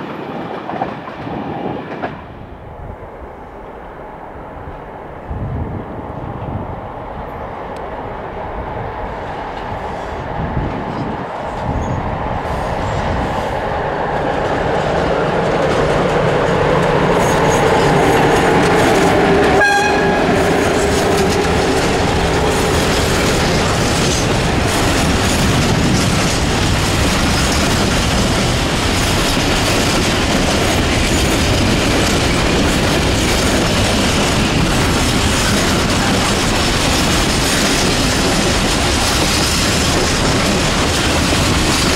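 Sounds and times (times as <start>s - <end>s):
freight train passing: 0.0s - 41.9s
wheels clattering over rails: 14.0s - 41.9s.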